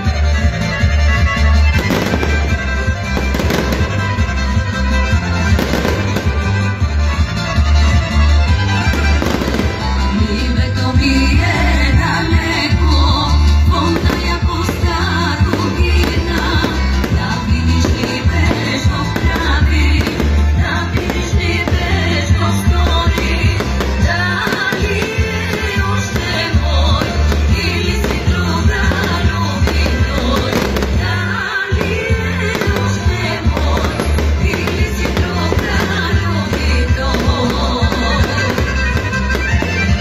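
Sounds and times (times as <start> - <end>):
loud music with heavy bass beat: 0.1 - 31.1
fireworks bursting and crackling: 1.5 - 40.0.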